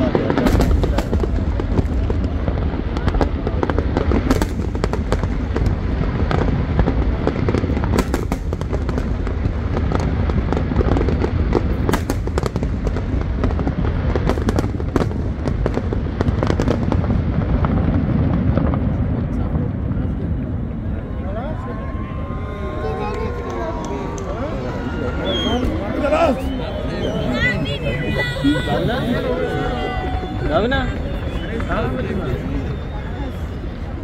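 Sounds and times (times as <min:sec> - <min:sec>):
fireworks bursting: 0:00.0 - 0:34.0.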